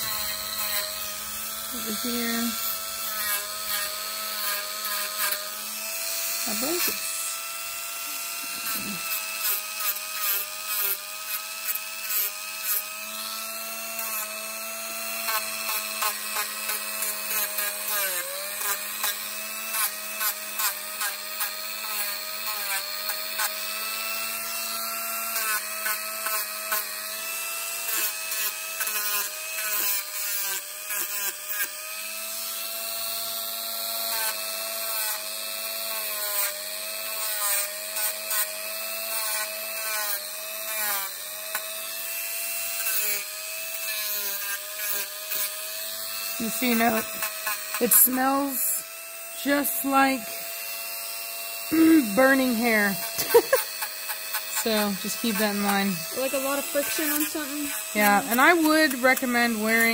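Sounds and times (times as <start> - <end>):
rotary tool whine: 0.0 - 59.9
nail rasping on sanding drum: 46.2 - 48.8, 51.7 - 59.9.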